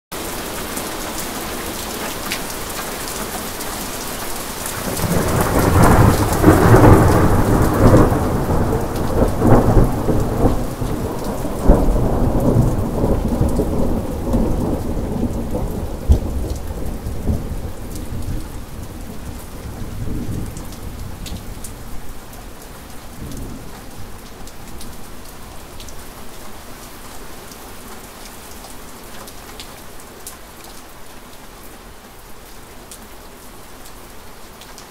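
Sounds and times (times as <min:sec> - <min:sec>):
steady rain falling: 0:00.1 - 0:34.9
thunder cracking and rumbling: 0:04.7 - 0:22.0.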